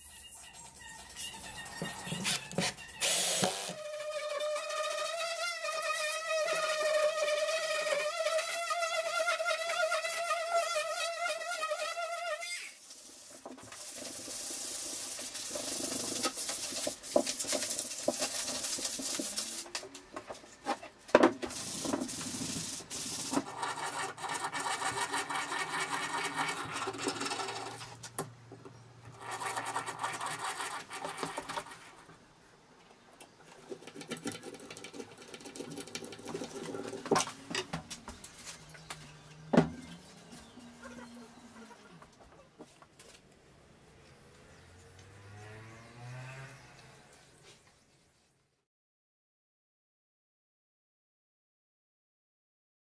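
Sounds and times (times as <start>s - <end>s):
power drill boring into wood: 1.8s - 3.8s.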